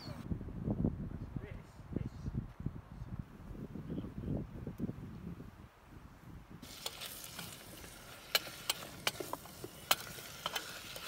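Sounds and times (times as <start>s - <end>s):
onions sizzling in a pot: 6.6s - 11.0s.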